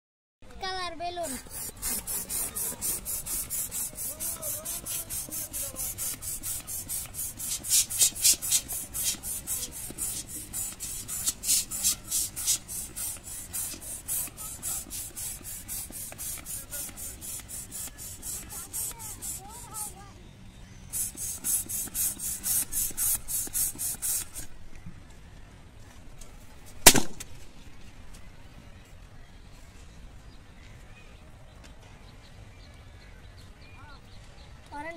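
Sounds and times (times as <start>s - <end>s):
hissing air pump strokes: 1.1s - 20.0s, 20.9s - 24.6s
balloon bursting pop: 26.8s - 27.3s.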